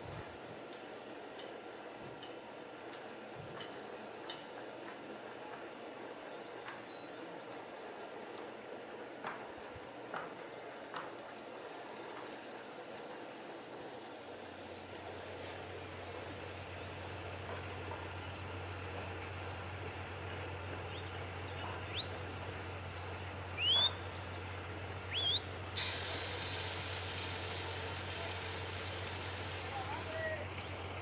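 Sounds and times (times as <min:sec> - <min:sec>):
rushing hiss: 0:12.7 - 0:17.6, 0:24.6 - 0:31.0
birds chirping: 0:14.3 - 0:25.6, 0:27.7 - 0:31.0.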